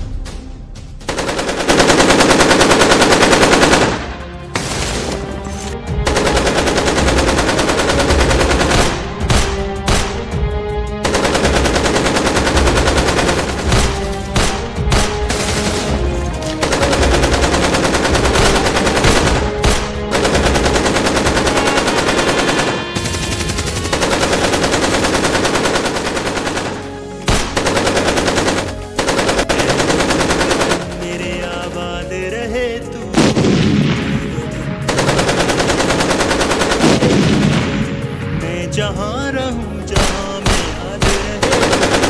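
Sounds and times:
automatic rifle fire: 1.1s - 5.1s, 6.1s - 10.3s, 16.6s - 31.2s, 34.8s - 37.8s, 40.0s - 42.0s.

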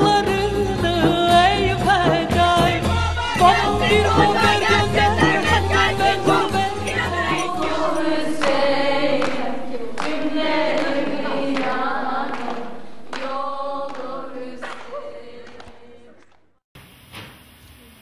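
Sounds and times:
choir singing long notes: 2.6s - 16.3s.

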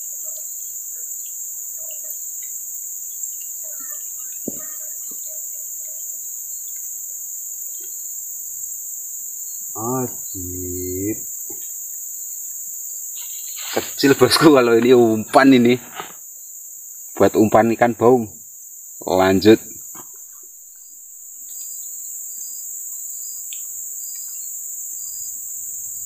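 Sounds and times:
high-pitched insect chorus: 0.0s - 26.0s
man's short wordless vocal sound: 9.8s - 11.2s.

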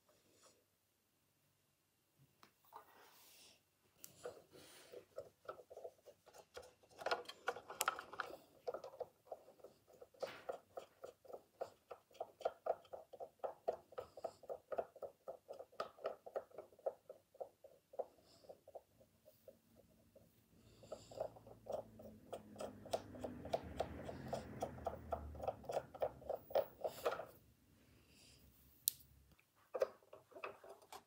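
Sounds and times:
cotton swab rubbing plastic wheel: 4.0s - 27.4s.

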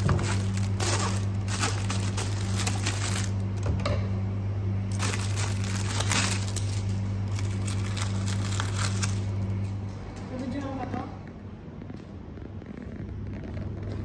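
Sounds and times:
scissors cutting cellophane: 0.0s - 3.3s, 4.9s - 9.4s
cellophane crinkling: 0.0s - 3.6s, 4.9s - 9.6s
low hum: 0.0s - 14.0s.

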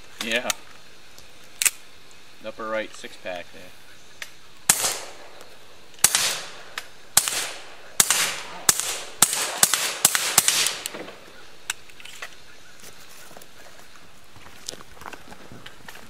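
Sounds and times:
suppressed pistol shots: 4.7s - 5.4s, 6.0s - 11.8s.

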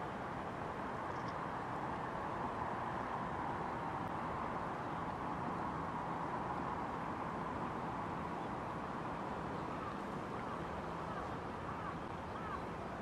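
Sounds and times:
rushing outdoor background noise: 0.0s - 13.0s
crow cawing: 11.1s - 12.6s.

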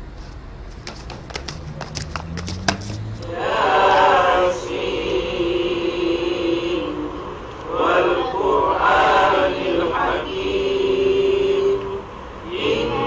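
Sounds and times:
group of voices chanting: 3.2s - 7.1s, 7.7s - 13.0s.

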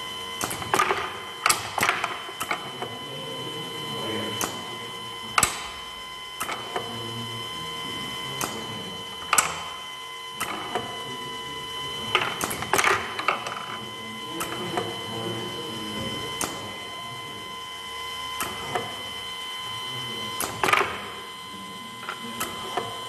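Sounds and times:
conveyor drive humming: 0.0s - 23.0s
pneumatic pushers clacking: 0.4s - 2.6s.

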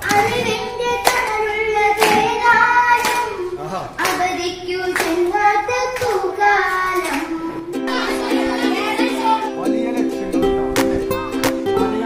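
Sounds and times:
children singing: 0.0s - 9.8s
hand claps: 2.0s - 2.4s, 3.0s - 3.3s, 4.0s - 4.3s, 5.0s - 7.4s, 10.8s - 11.7s.

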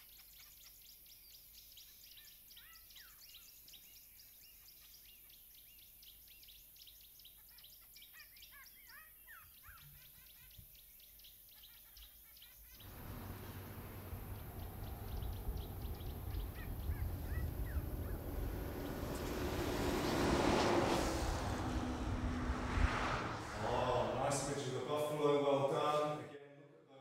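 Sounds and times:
birds chirping: 12.8s - 24.2s
sliding whistled bird calls: 12.9s - 21.0s
low rumbling background noise: 12.9s - 25.0s.

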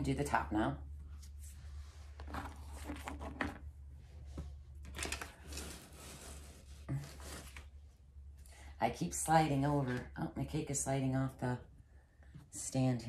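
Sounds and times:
low electrical hum: 0.0s - 13.0s
scrapes and rustles of handwork: 1.0s - 8.0s.

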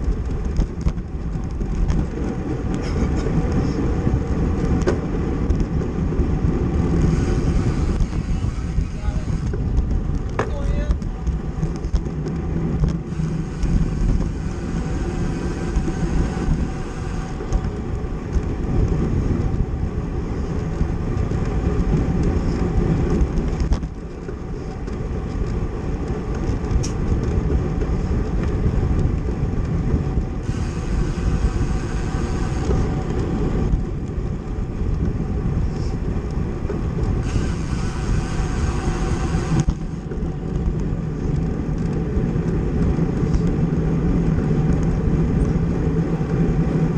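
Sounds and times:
bicycle road rumble: 0.0s - 46.9s
wind rushing over microphone: 0.0s - 46.9s.

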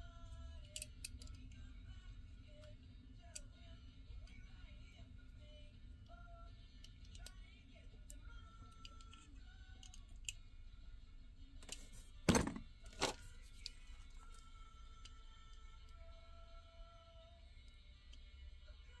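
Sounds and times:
light clicks of toy handling: 0.4s - 1.7s, 6.8s - 10.4s, 12.9s - 16.1s.

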